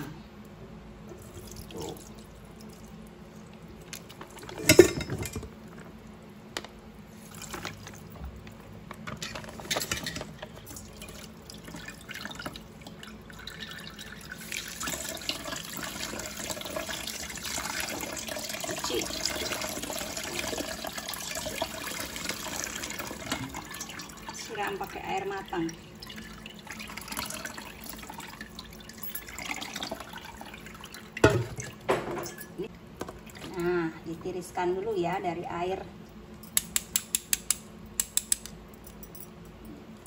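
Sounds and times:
metal knock in sink: 31.2 - 32.3.

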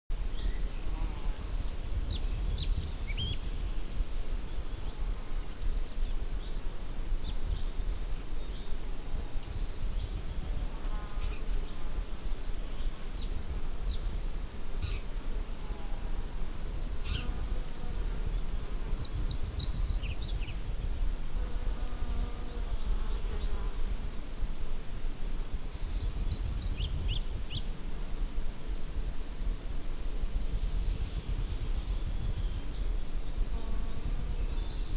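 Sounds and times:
wind rumbling on microphone: 0.1 - 10.8, 16.1 - 21.5, 23.8 - 34.9
insects buzzing: 0.1 - 34.9
songbird singing trilled phrases: 0.3 - 3.8, 18.9 - 21.2, 25.7 - 27.6.

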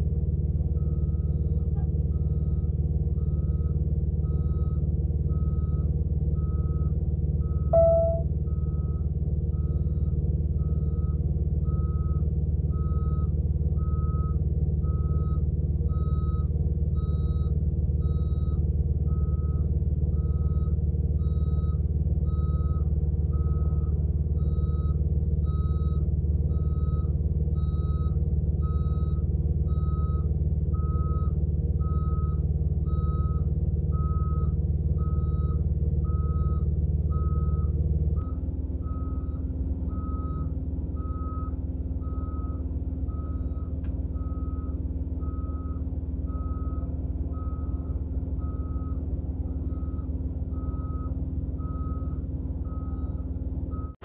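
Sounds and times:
diesel truck engine running: 0.0 - 54.0
truck backup alarm beeping: 0.7 - 54.0
short loud tone: 7.7 - 8.3.

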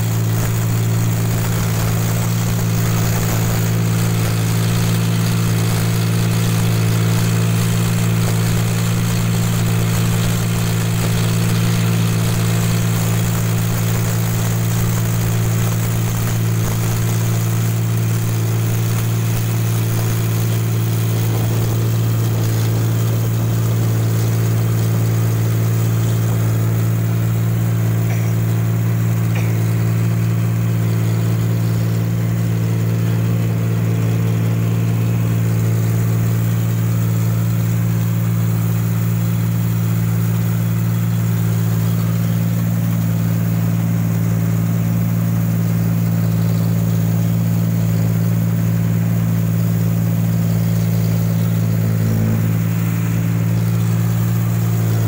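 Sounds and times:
combine harvester engine drone: 0.0 - 55.0.

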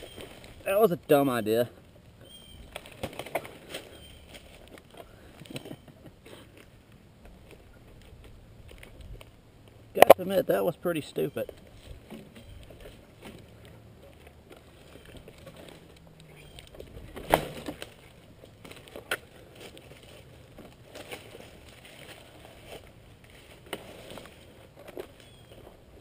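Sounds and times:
rustling in dry brush: 19.4 - 25.7.

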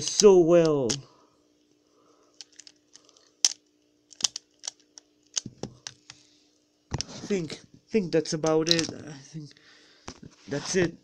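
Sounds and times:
faint steady hum: 0.0 - 11.0
plastic puzzle clicking: 3.4 - 6.0.

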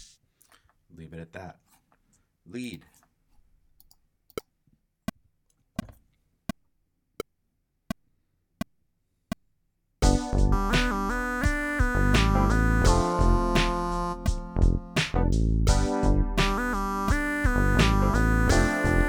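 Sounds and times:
electric piano: 10.0 - 19.0
synth bass: 10.0 - 19.0
synthesized drum beat: 10.0 - 19.0.

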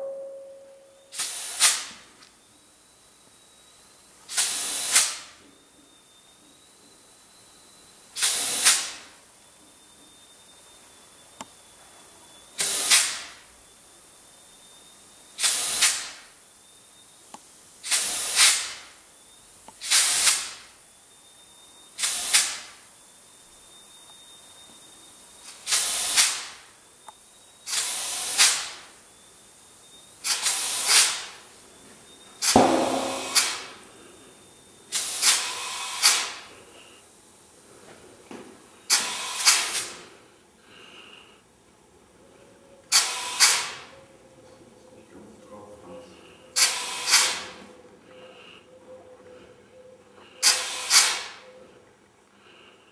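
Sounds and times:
faint high whine: 0.0 - 4.3, 5.2 - 8.2, 9.0 - 12.6, 13.3 - 15.4, 16.2 - 17.8, 18.9 - 19.8, 20.6 - 22.0, 22.7 - 25.7, 26.6 - 27.8, 28.8 - 30.2, 31.3 - 35.0
compressed air hissing: 1.1 - 2.0, 4.3 - 5.4, 8.2 - 9.2, 12.6 - 13.5, 15.4 - 16.4, 17.4 - 19.1, 19.8 - 20.8, 21.9 - 22.9, 25.4 - 26.8, 27.6 - 31.6, 32.4 - 37.8, 38.6 - 41.5, 42.9 - 43.9, 46.1 - 47.6, 50.3 - 51.4.

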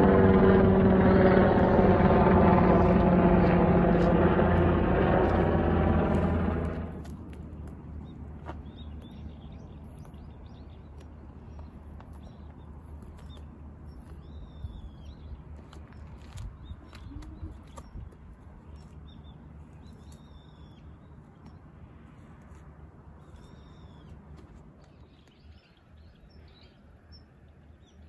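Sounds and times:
steady low rumble: 0.0 - 26.6
small birds chirping: 7.6 - 22.1, 23.0 - 28.0.

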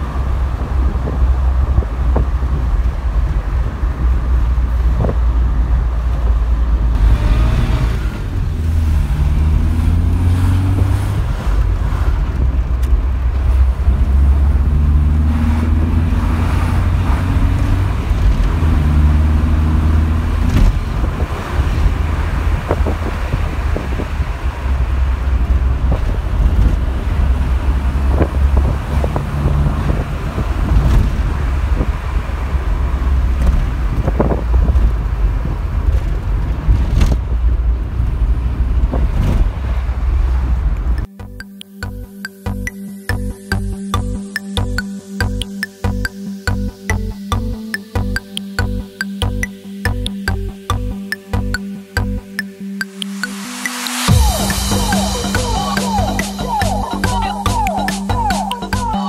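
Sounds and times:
car engine accelerating: 0.0 - 41.1.

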